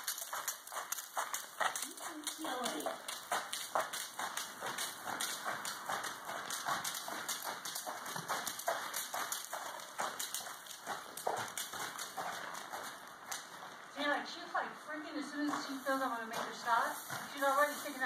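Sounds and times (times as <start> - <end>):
horse hoofbeats on dirt: 0.0 - 18.0.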